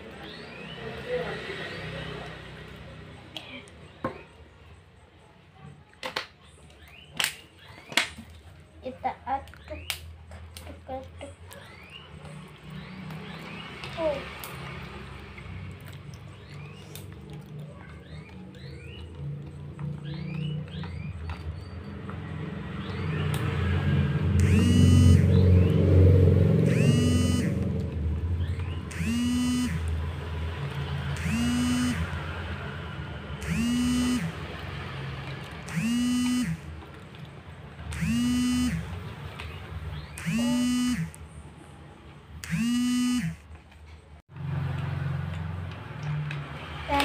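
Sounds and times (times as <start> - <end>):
horn-like tones: 24.3 - 25.8, 26.6 - 27.8, 28.9 - 30.0, 31.1 - 32.3, 33.4 - 34.5, 35.7 - 36.7, 37.9 - 39.0, 40.2 - 41.2, 42.4 - 43.4.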